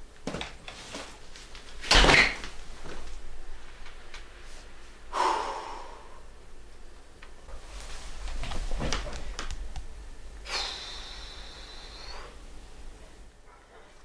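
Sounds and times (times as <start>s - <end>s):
door shutting: 1.8s - 3.0s.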